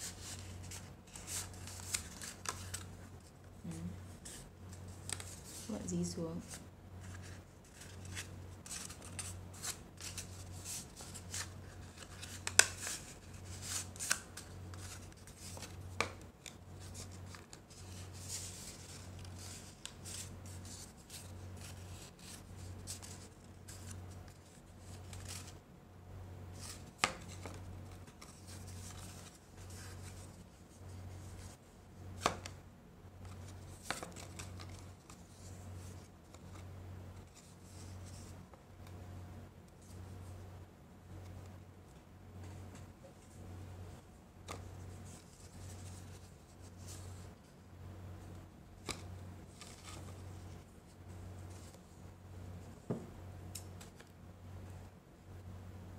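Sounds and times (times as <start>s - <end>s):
paper rustling and crinkling: 0.0s - 25.6s, 26.6s - 32.6s, 33.2s - 38.5s, 44.4s - 47.6s, 48.8s - 52.0s.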